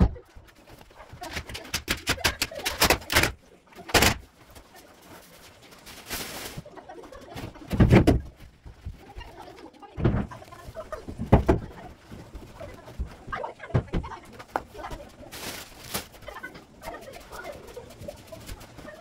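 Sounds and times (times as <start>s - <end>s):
furniture knocking and clattering: 7.4s - 8.4s, 11.0s - 11.9s.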